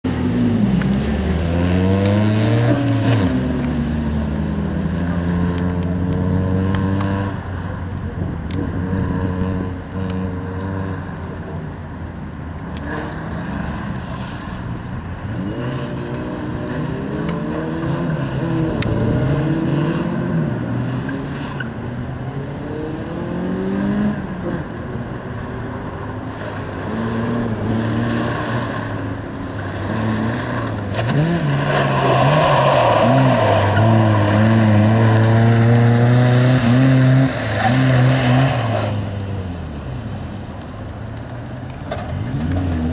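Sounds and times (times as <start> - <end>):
car engine revving: 0.2 - 11.6, 22.2 - 42.9.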